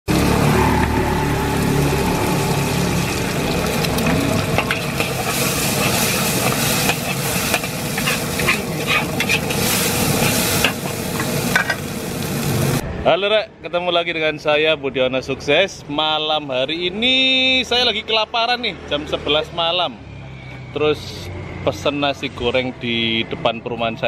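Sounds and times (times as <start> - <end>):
oil sizzling in a wok: 0.1 - 12.8
spatula scraping a wok: 3.7 - 12.0.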